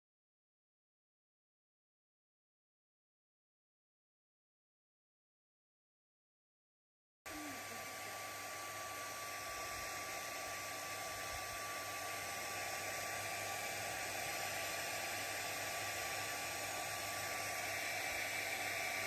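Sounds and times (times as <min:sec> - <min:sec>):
electric blower rushing air: 0:07.3 - 0:19.0.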